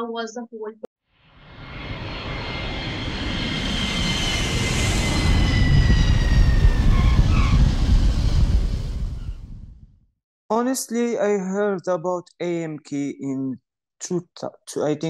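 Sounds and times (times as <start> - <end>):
high engine whine: 1.2 - 9.6
jet airplane flyby roar: 1.2 - 9.7.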